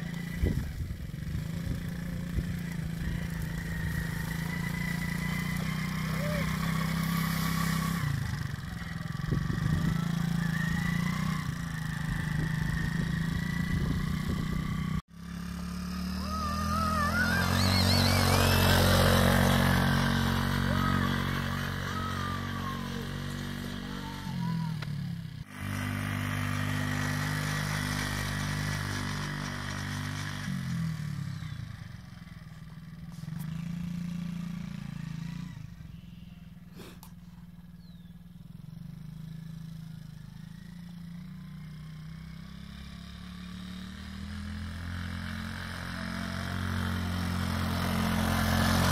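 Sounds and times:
quad bike engine: 0.0s - 48.9s.

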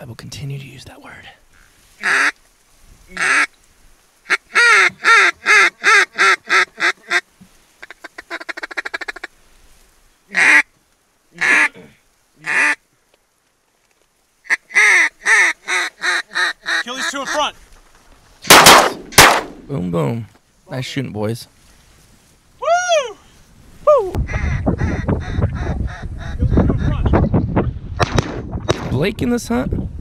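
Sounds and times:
duck call quacks: 2.0s - 2.4s, 3.1s - 3.5s, 4.3s - 7.2s, 7.8s - 9.3s, 10.3s - 10.7s, 11.4s - 11.8s, 12.4s - 12.8s, 14.4s - 17.5s, 24.3s - 27.0s.

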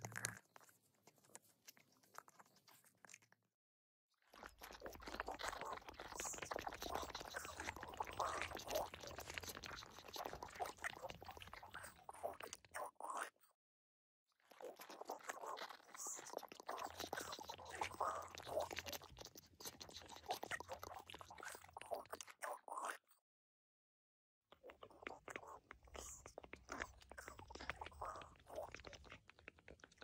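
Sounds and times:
wet clicks and crackles: 4.4s - 12.8s, 24.5s - 30.0s.

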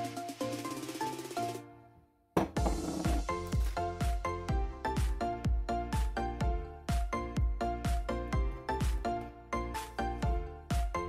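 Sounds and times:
background music with steady beat: 0.0s - 1.8s, 2.4s - 11.0s.

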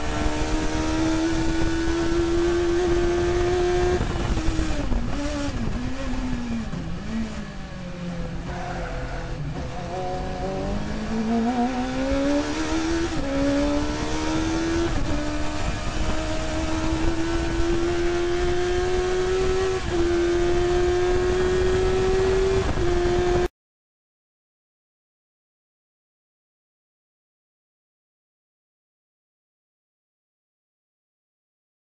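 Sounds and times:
racing car engine accelerating: 0.0s - 23.5s.

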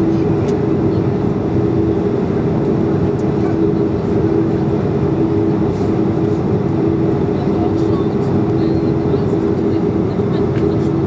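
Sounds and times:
jet engines humming: 0.0s - 11.0s.

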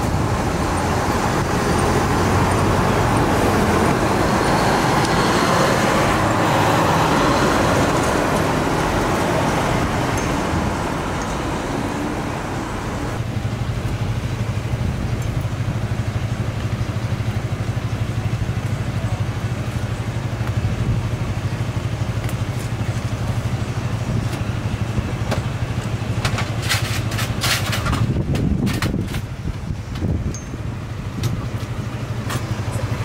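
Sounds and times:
engine idling: 5.9s - 27.2s.

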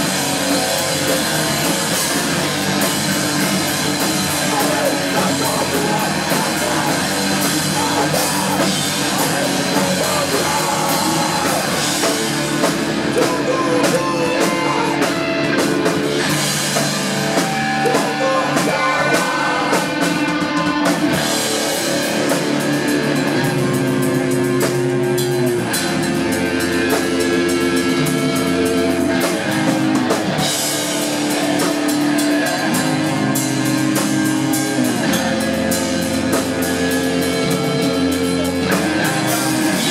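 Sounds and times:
bass guitar: 0.0s - 39.9s
drum kit: 0.0s - 39.9s
electric guitar: 0.0s - 39.9s
person singing: 2.8s - 16.4s, 17.2s - 21.2s, 37.2s - 39.9s.

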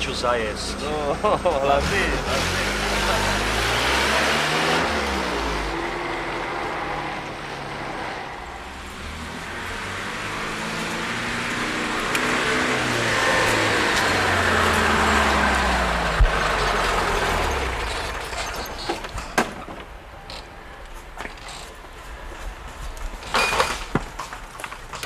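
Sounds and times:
jeep engine driving: 0.0s - 19.2s.

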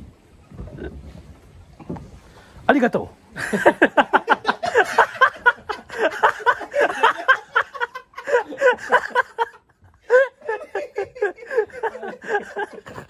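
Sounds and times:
people laughing: 3.4s - 13.0s.

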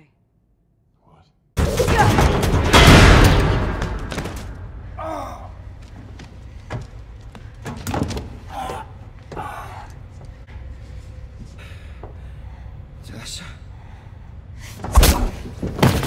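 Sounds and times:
explosion: 1.7s - 4.2s.

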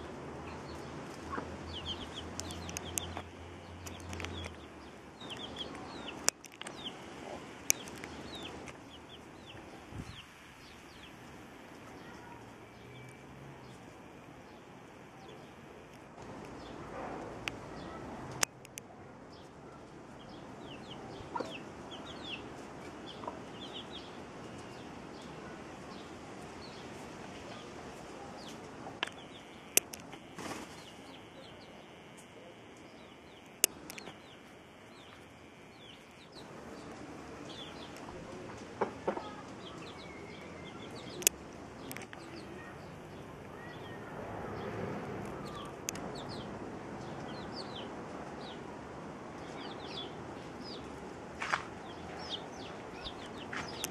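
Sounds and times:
chicks peeping: 0.4s - 14.6s, 20.2s - 27.7s, 28.4s - 44.0s, 45.3s - 48.6s, 49.4s - 53.9s
hen clucking: 1.1s - 3.3s, 20.8s - 22.4s
sharp clicks: 2.3s - 4.6s, 29.0s - 30.5s, 32.1s - 34.3s.

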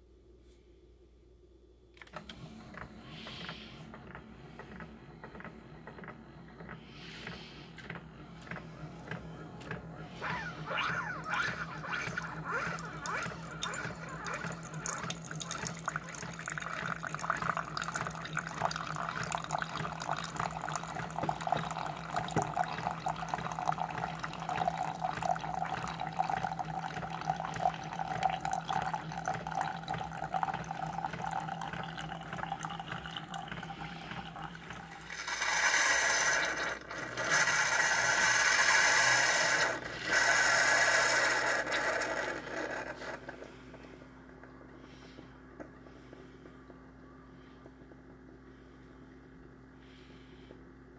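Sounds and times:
coffee maker pump hum: 1.9s - 50.9s
coffee maker hissing and sputtering: 2.2s - 44.0s
coffee streaming into cup: 6.6s - 43.6s.

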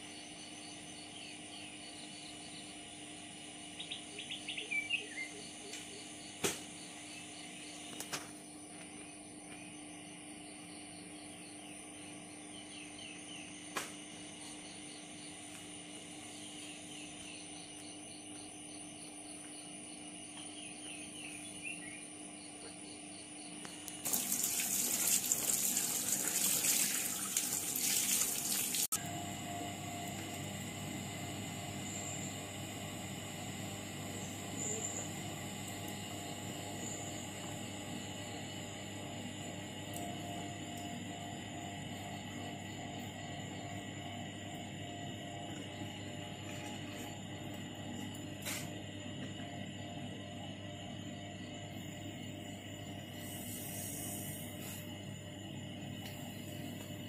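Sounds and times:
faint steady hum: 0.0s - 57.0s
birds chirping: 3.7s - 8.1s.

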